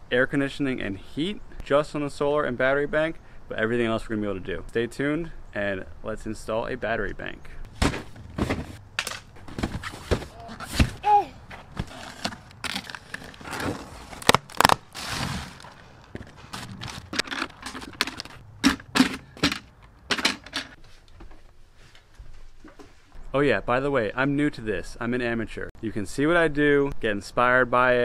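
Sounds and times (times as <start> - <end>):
heavy objects thunking on gravel: 7.7 - 13.9
cardboard rustling: 7.7 - 22.1
cardboard boxes tearing: 11.8 - 18.3.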